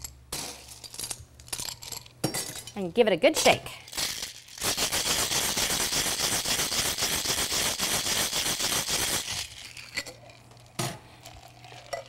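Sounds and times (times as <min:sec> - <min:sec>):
ice rattling in cocktail shaker: 0:03.9 - 0:12.0.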